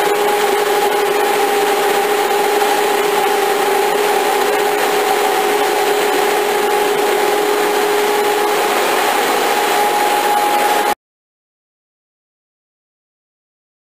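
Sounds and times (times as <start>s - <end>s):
machine rushing hiss: 0.0s - 11.0s
two-note machine whine: 0.0s - 11.0s.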